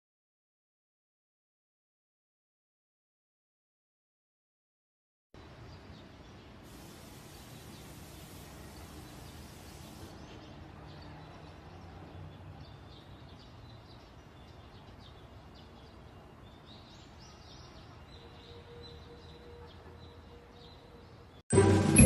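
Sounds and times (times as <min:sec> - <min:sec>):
faint outdoor background noise: 0:05.4 - 0:22.0
small bird chirps: 0:05.6 - 0:21.4.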